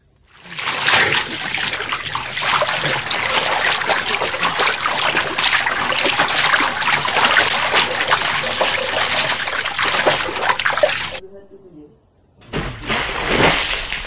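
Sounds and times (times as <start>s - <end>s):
water splashing and trickling: 0.3s - 11.2s.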